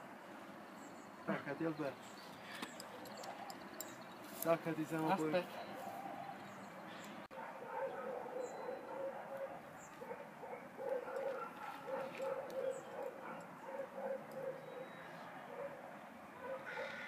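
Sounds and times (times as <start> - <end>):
faint high bird chirps: 8.3 - 9.1, 14.4 - 15.3.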